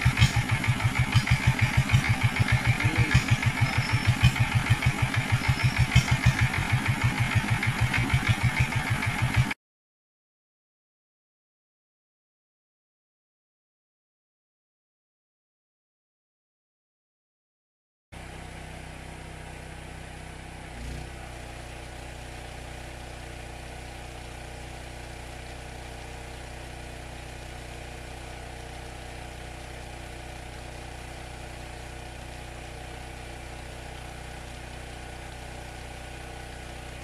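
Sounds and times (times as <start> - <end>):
generator engine running: 0.0 - 9.6, 18.2 - 37.0.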